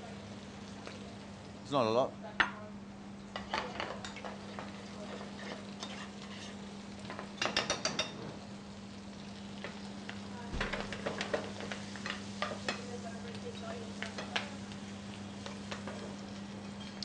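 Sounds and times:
utensil clinking in frying pan: 3.3s - 8.3s, 10.7s - 14.6s.

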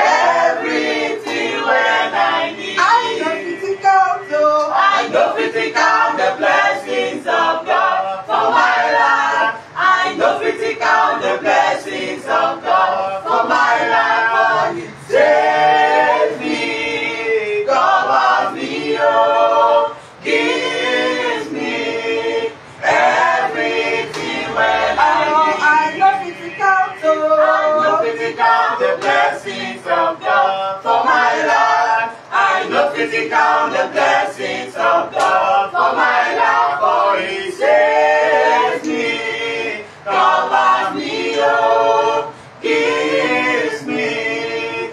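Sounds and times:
group singing a cappella: 0.0s - 44.9s
hand clapping: 1.2s - 1.5s, 24.1s - 24.5s, 35.1s - 35.4s.

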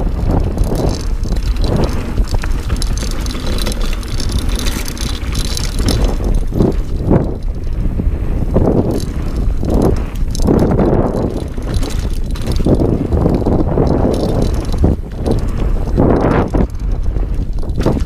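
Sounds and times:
bike rattling: 0.0s - 18.0s
tyres rumbling on dirt: 0.0s - 18.0s
wind buffeting microphone: 0.0s - 18.0s
bike knocks over bumps: 0.2s - 7.4s, 17.5s - 18.0s.

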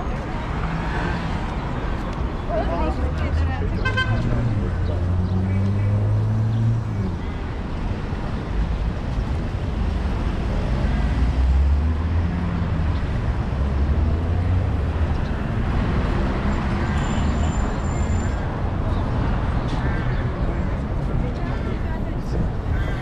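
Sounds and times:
cars running past: 0.0s - 8.8s.

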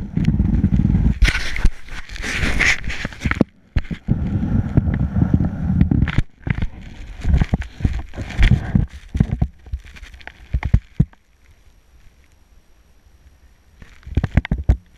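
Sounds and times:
skis scraping over snow: 0.3s - 3.4s.

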